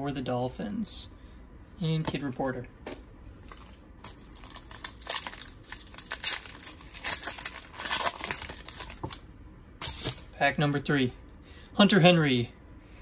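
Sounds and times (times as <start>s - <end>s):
foil wrapper crinkling and tearing: 3.5s - 9.2s.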